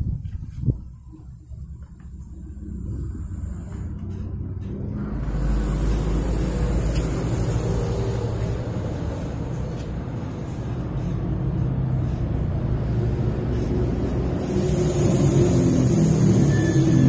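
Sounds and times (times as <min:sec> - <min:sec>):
vehicle engine rumbling: 0:00.0 - 0:17.0
hiss: 0:13.0 - 0:17.0.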